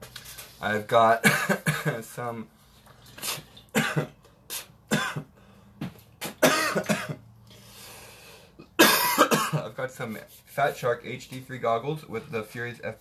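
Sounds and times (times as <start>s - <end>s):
man coughing: 1.2s - 2.0s, 3.7s - 4.2s, 4.9s - 5.3s, 6.4s - 7.2s, 8.6s - 9.7s.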